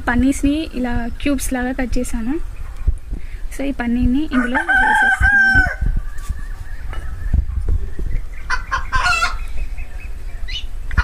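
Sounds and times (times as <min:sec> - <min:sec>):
chickens clucking: 0:04.2 - 0:11.0
hen calls: 0:04.3 - 0:11.0.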